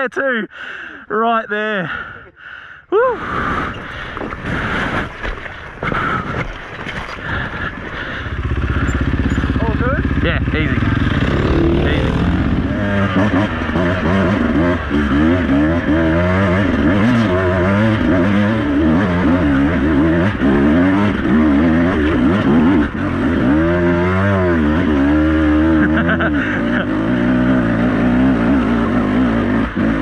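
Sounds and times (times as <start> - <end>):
dirt bike engines revving: 3.3 - 6.4, 7.0 - 30.0
steady low drone: 7.5 - 29.8.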